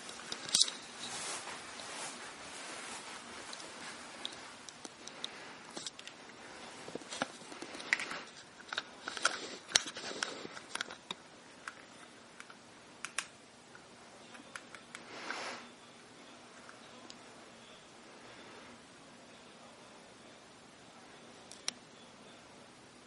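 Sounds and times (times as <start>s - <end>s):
camera rig rustling: 0.0s - 11.1s.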